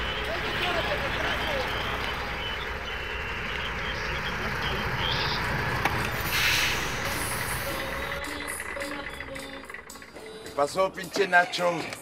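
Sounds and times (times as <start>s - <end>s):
diesel truck engine rumbling: 0.0s - 12.0s
loud burst of hiss: 6.2s - 7.6s.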